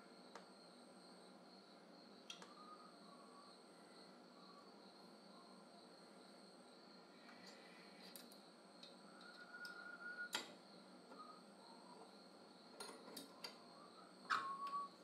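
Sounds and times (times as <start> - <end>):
brief squeak: 14.3 - 15.0.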